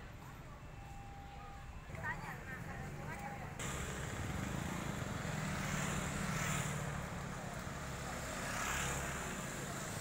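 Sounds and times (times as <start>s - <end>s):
street traffic: 0.0s - 10.0s
motorbikes passing: 3.0s - 10.0s.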